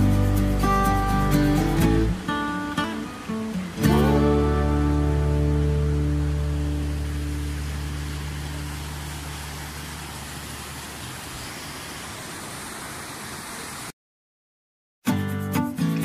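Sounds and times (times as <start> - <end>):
music with plucked notes: 0.0 - 8.8, 15.0 - 16.0
low music notes: 0.0 - 9.1
river flowing over rocks: 0.0 - 13.9.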